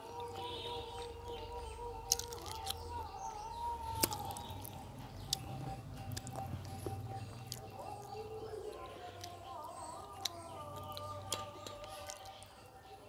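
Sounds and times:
mouth clicks and smacks: 3.9 - 8.2, 10.1 - 12.5.

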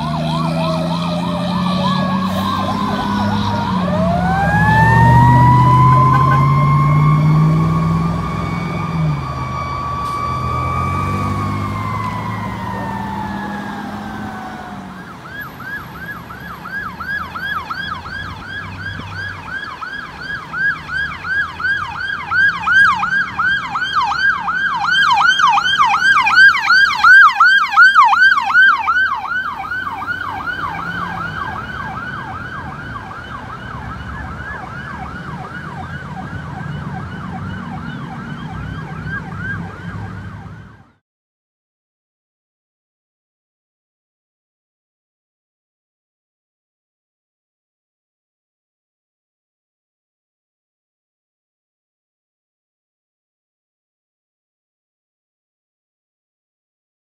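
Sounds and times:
heavy engine drone: 0.0 - 16.6
siren fast yelp: 0.0 - 41.0
siren wail: 0.0 - 41.0.

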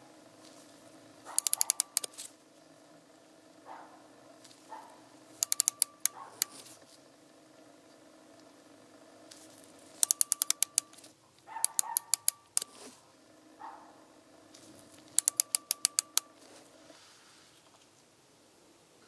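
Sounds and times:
faint steady hum: 0.0 - 19.0
micrometer ratchet clicking: 1.3 - 2.2, 5.4 - 6.8, 10.0 - 12.8, 15.0 - 16.4.

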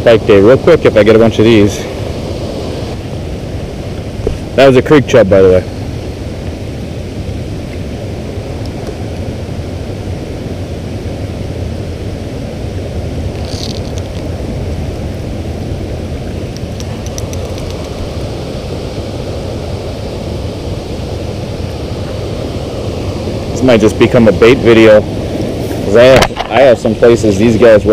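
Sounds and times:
flowing creek water: 0.0 - 27.9
handling clicks: 16.5 - 17.9.

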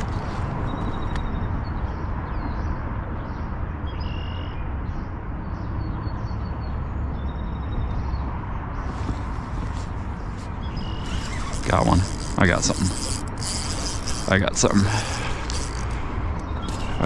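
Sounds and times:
wind: 0.0 - 17.0
faint bird calls: 9.0 - 17.0.

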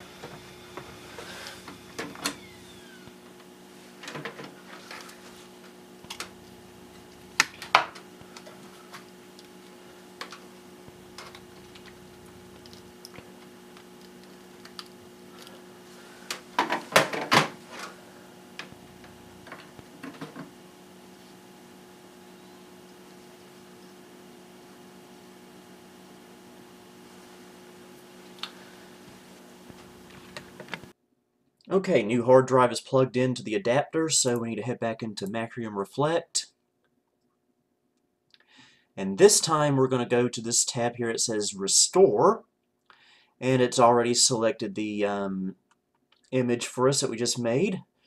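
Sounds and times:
computer hum: 0.0 - 31.0.

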